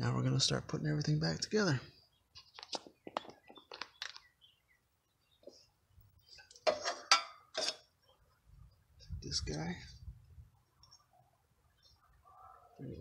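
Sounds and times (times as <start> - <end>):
parts clattering: 6.4 - 7.9.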